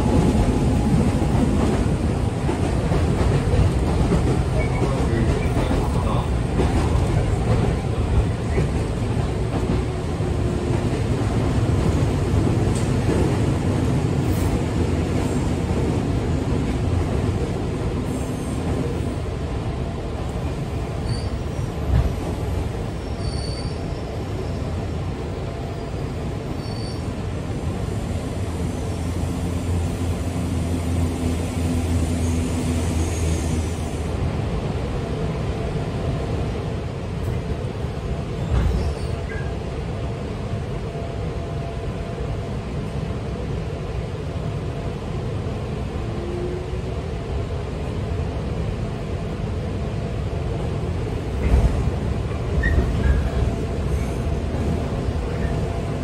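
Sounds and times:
train wheels rumbling on track: 0:00.0 - 0:56.0
brief high squeaks: 0:23.1 - 0:23.8, 0:26.6 - 0:27.1.

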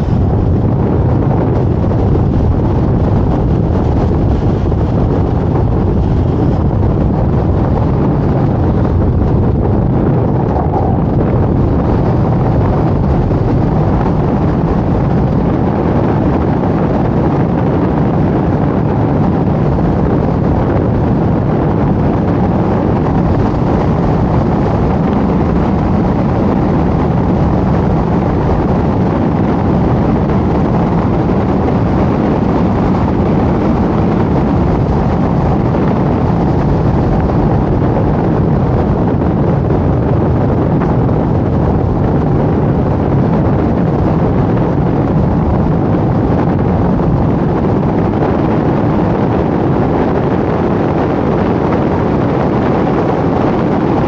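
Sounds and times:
car road noise: 0:00.0 - 0:18.5
wind rushing over microphone: 0:00.0 - 0:54.0.

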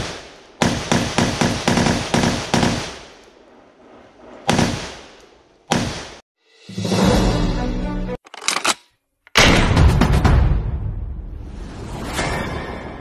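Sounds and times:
rifle shots echoing: 0:00.0 - 0:03.2, 0:04.5 - 0:06.2.

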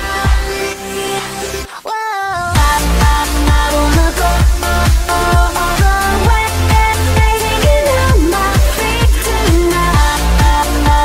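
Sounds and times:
kick-drum beat: 0:02.6 - 0:11.0
synth sweep rising and falling: 0:07.4 - 0:09.9
falling synth line: 0:07.4 - 0:10.0.

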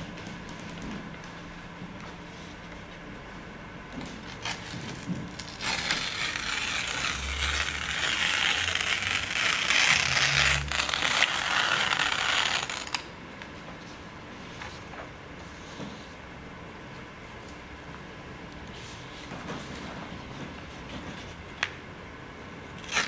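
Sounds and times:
paper tearing: 0:04.3 - 0:13.1, 0:22.8 - 0:23.0.

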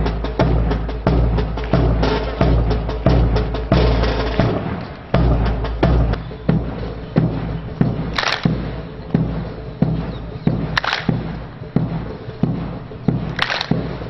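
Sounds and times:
bass drum beating: 0:00.0 - 0:14.0.

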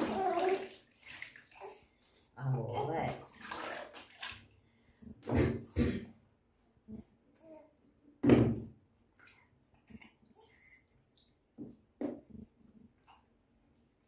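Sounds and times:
water splashing in a tub: 0:00.0 - 0:04.7.

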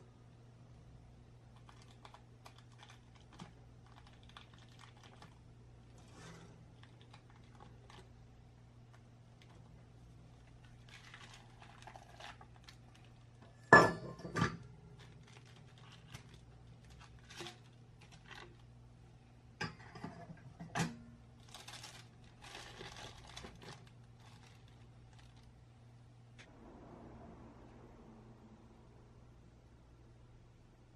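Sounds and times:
parchment paper rustling: 0:01.6 - 0:08.2, 0:10.3 - 0:13.4, 0:14.9 - 0:18.7, 0:21.3 - 0:25.6.

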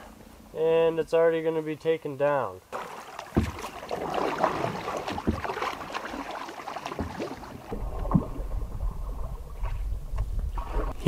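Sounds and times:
paddles splashing in water: 0:02.7 - 0:11.0
wind rumble on microphone: 0:07.7 - 0:11.0.

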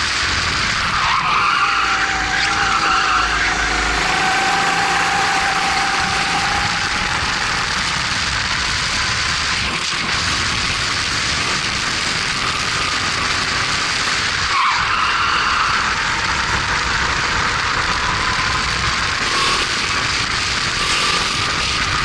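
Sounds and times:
kart engine running: 0:00.0 - 0:22.0.

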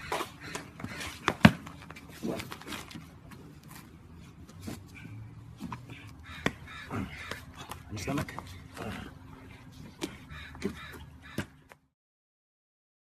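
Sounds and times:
short grunts: 0:05.8 - 0:10.8.

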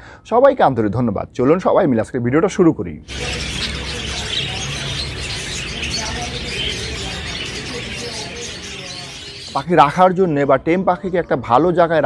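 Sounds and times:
small birds chirping: 0:03.0 - 0:10.4.

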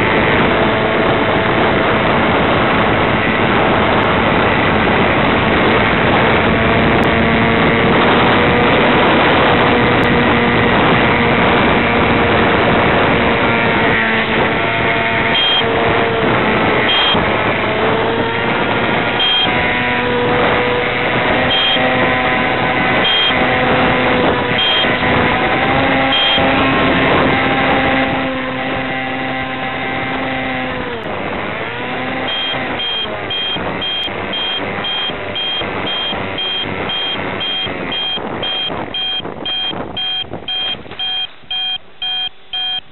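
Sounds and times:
model plane motor whining: 0:00.0 - 0:40.6
short high beeps: 0:15.4 - 0:15.7, 0:16.9 - 0:17.2, 0:19.2 - 0:19.5, 0:21.5 - 0:21.9, 0:23.0 - 0:23.4, 0:24.6 - 0:25.0, 0:26.0 - 0:26.5, 0:32.3 - 0:42.9.

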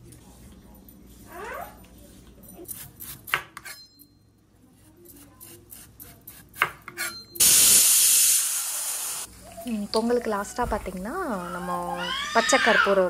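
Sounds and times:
loud steady hiss: 0:07.4 - 0:09.3.

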